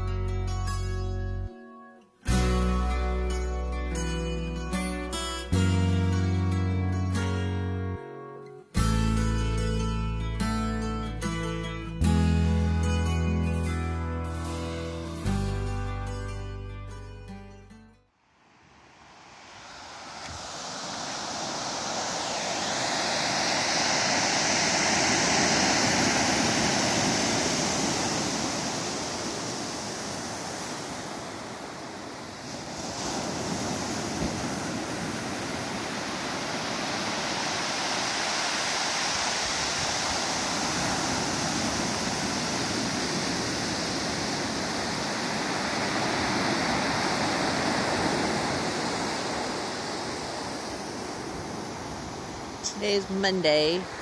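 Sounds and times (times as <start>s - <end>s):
ocean surf breaking on shore: 18.6s - 54.0s.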